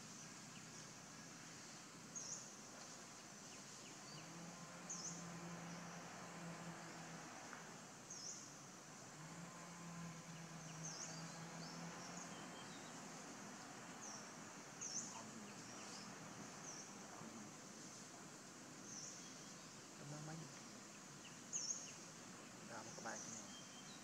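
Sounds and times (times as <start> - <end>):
faint low hum: 0.0 - 24.0
steady background hiss: 0.0 - 24.0.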